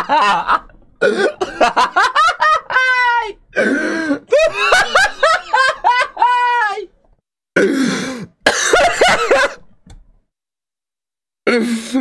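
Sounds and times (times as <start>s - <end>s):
man laughing hard: 0.0s - 6.9s
cough-like hacking: 7.6s - 9.6s.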